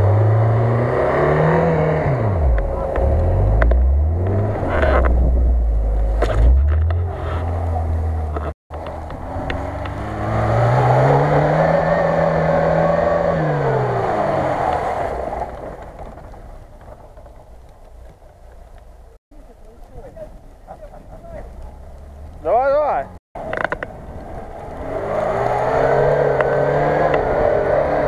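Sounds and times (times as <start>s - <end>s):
engine revving under load: 0.0s - 15.5s, 23.5s - 28.0s
car engine rumbling: 0.0s - 28.0s.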